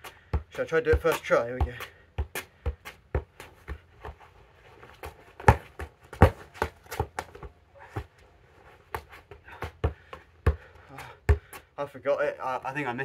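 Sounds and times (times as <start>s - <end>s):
ball thudding against feet: 0.0s - 11.7s
footsteps on paving slabs: 0.0s - 11.8s
shoe scuffs: 2.4s - 9.6s.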